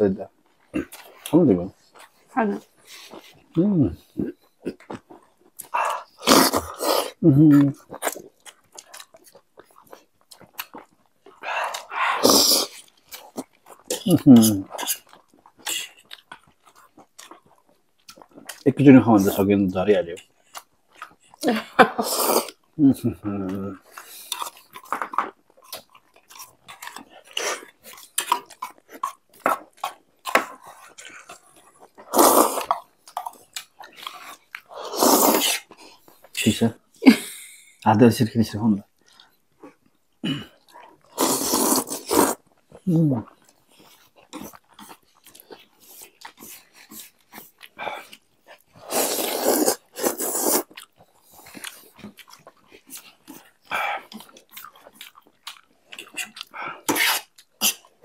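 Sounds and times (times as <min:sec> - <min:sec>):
wet chewing and smacking: 0:00.3 - 0:58.0
noodle slurping: 0:05.6 - 0:07.2, 0:11.3 - 0:13.4, 0:30.8 - 0:32.8, 0:34.1 - 0:35.8, 0:40.8 - 0:42.4, 0:48.8 - 0:51.8.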